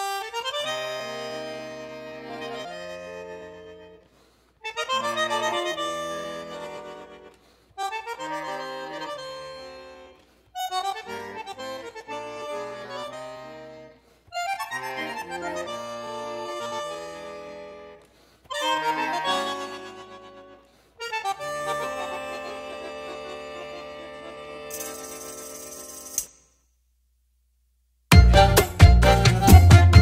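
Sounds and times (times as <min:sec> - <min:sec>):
instrumental background music: 0:28.1 - 0:30.0.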